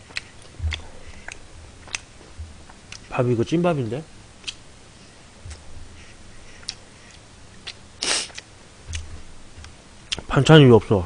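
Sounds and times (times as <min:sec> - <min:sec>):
person chewing rice: 0:00.0 - 0:03.2, 0:04.4 - 0:10.3
wet mouth clicks: 0:00.1 - 0:02.1, 0:04.4 - 0:04.6, 0:06.6 - 0:10.3
breathy rush of noise: 0:04.1 - 0:09.6.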